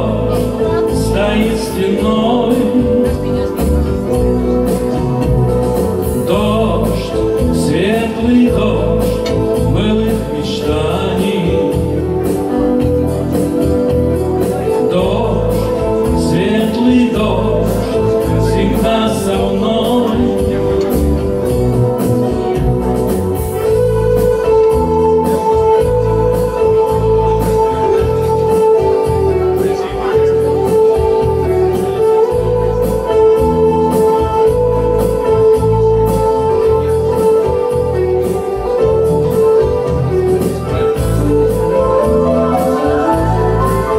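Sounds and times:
acoustic guitar song: 0:00.0 - 0:43.9.

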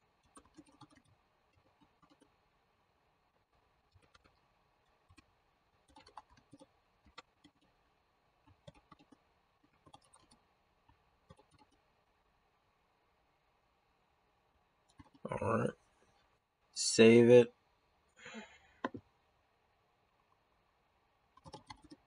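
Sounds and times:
faint keyboard typing: 0:00.0 - 0:02.8, 0:03.4 - 0:12.2, 0:14.8 - 0:16.3, 0:18.8 - 0:19.1, 0:21.2 - 0:22.0.

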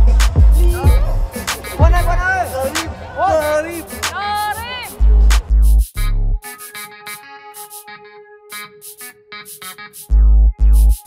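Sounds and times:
quick ticking beat: 0:00.0 - 0:06.8.

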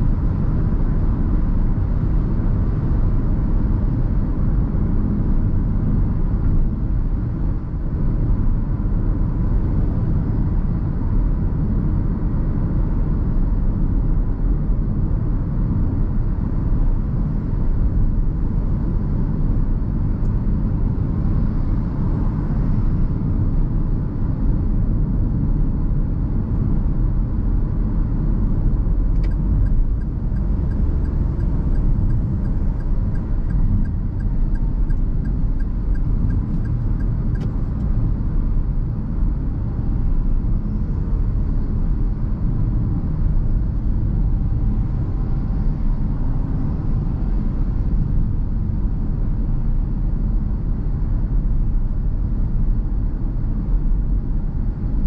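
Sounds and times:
car engine: 0:00.0 - 0:55.0
faint regular ticking: 0:29.2 - 0:37.6.

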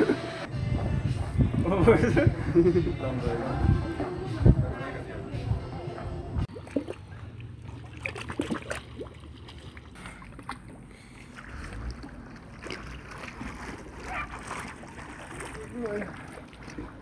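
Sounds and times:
wind rumble on microphone: 0:00.5 - 0:06.5
water lapping and sloshing: 0:00.7 - 0:17.0
light knocks and splashes: 0:06.5 - 0:17.0.

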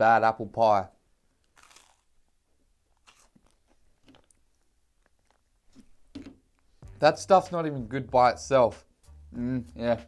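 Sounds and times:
toast crunch: 0:01.3 - 0:06.7.

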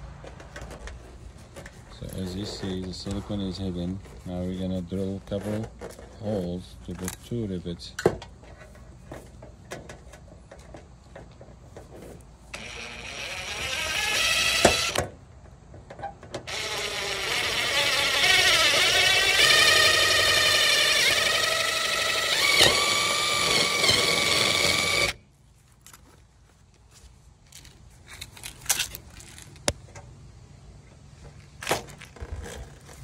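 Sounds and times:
cordless drill boring through metal: 0:12.6 - 0:15.0, 0:16.5 - 0:25.2.

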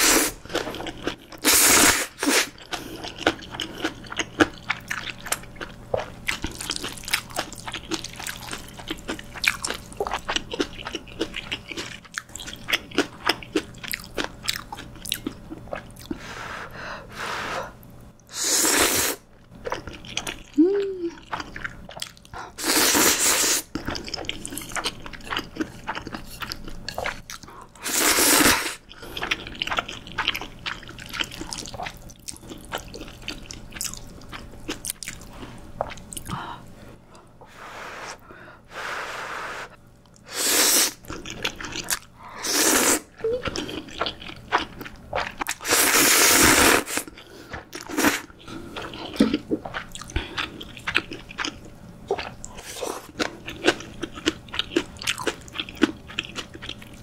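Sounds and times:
slurping noodles: 0:00.0 - 0:00.8, 0:01.4 - 0:02.6, 0:18.3 - 0:19.2, 0:22.6 - 0:23.7, 0:27.8 - 0:28.8, 0:37.5 - 0:41.1, 0:42.4 - 0:43.1, 0:45.5 - 0:48.3
wet chewing: 0:23.7 - 0:27.8, 0:28.9 - 0:36.4, 0:43.2 - 0:46.0, 0:46.9 - 0:57.0.

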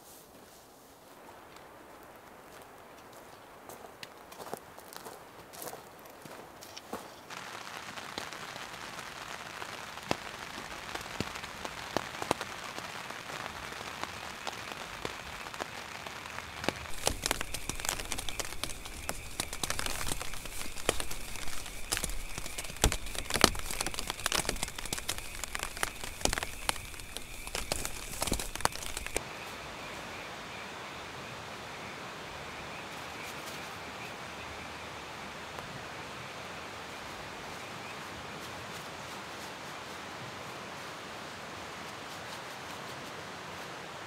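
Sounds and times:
steady soft hiss: 0:00.0 - 0:44.0
nylon sacks crinkling: 0:16.6 - 0:29.2.

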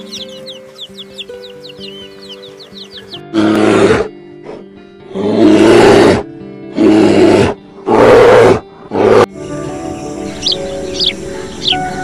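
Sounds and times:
background music: 0:00.0 - 0:12.0
bear roaring: 0:05.1 - 0:09.3.

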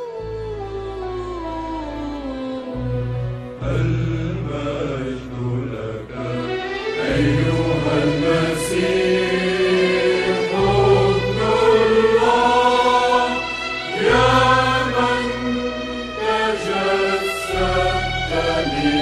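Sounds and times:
sustained low bass: 0:00.5 - 0:06.5, 0:10.5 - 0:19.0
choir singing held notes: 0:03.6 - 0:19.0.

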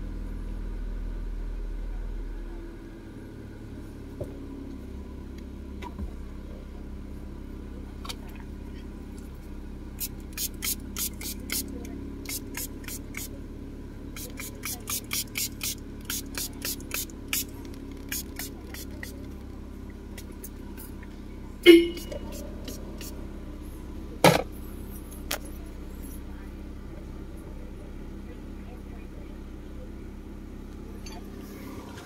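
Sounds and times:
car engine idling: 0:00.0 - 0:32.0
aerosol spray hissing bursts: 0:10.0 - 0:11.7, 0:14.2 - 0:17.5, 0:18.1 - 0:19.1.

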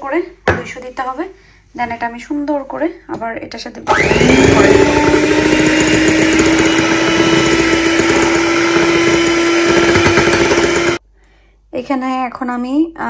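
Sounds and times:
electric hand mixer whisking: 0:03.9 - 0:11.0.

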